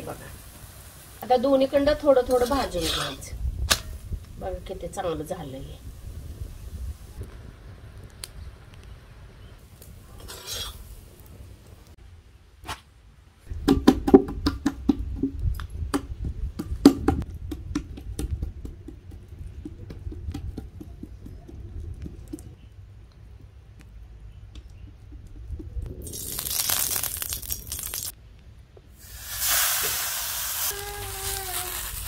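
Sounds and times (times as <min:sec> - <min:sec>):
hands slapping dough: 0:15.9 - 0:22.3.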